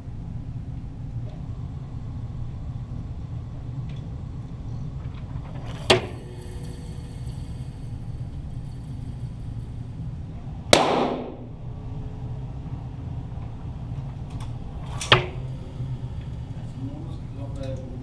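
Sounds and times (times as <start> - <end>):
pistol shots: 10.7 - 11.4.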